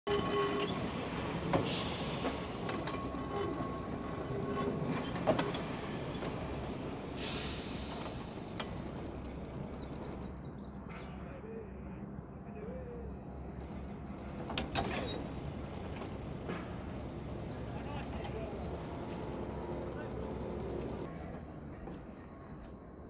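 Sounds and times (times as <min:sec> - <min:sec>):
tram rolling on rails: 0:00.1 - 0:12.1, 0:13.2 - 0:23.0
wheels clicking over track: 0:07.9 - 0:10.3, 0:14.1 - 0:21.1.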